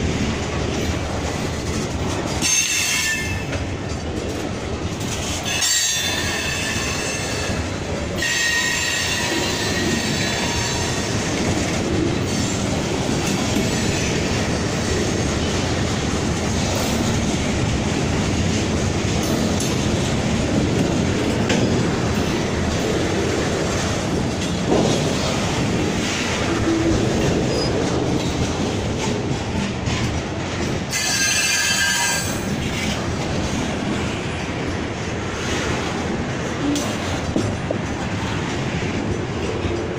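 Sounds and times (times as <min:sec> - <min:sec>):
train wheels rumbling on rail: 0:00.0 - 0:39.9
high wheel squeal: 0:08.2 - 0:11.1, 0:30.9 - 0:32.4.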